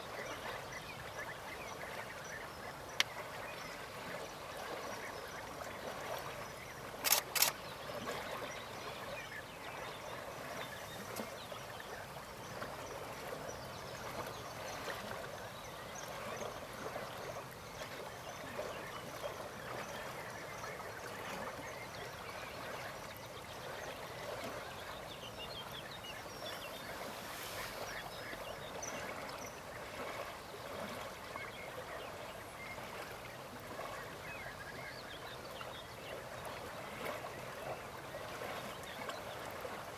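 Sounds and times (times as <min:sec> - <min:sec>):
sharp clicks: 0:07.0 - 0:07.6.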